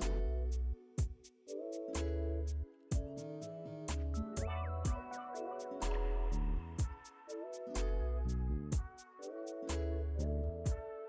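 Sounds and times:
deep bass notes: 0.0s - 0.8s, 5.8s - 6.9s, 7.8s - 8.8s
held chords: 2.9s - 10.8s
sharp drum hit: 5.8s - 7.2s.

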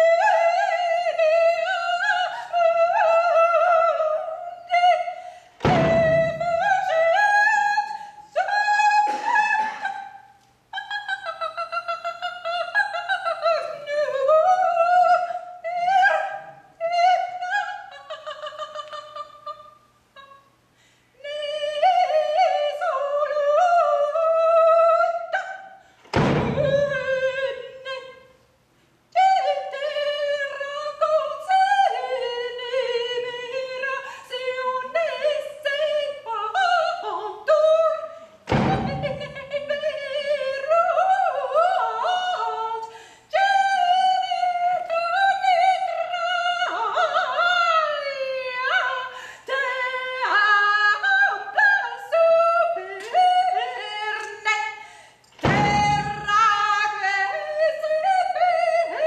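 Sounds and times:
woman singing wordless lines: 0.0s - 20.4s, 21.2s - 28.4s, 29.1s - 59.0s
bass drum hit: 5.6s - 6.6s.

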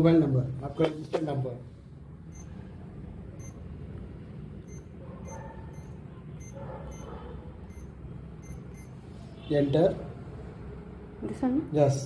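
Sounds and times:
low background hum: 0.0s - 12.0s
payment terminal key beeps: 2.3s - 2.6s, 3.4s - 3.6s, 4.6s - 9.0s.

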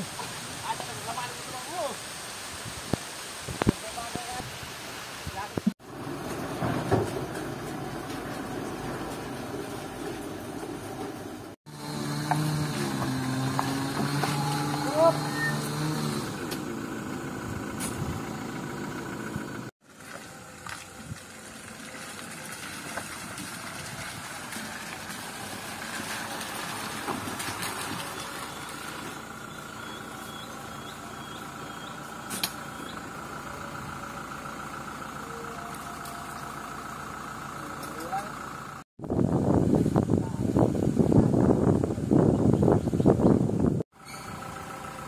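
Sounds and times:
pickup engine idling: 14.1s - 38.8s, 43.6s - 45.0s.

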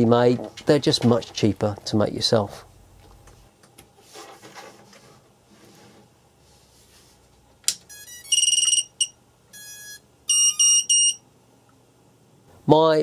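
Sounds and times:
electronic power-up beeps: 7.9s - 11.2s.

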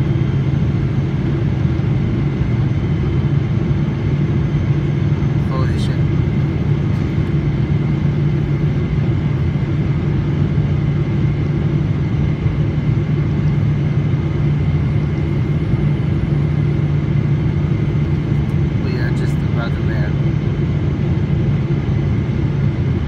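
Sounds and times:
airliner cabin engine rumble: 0.0s - 23.0s.

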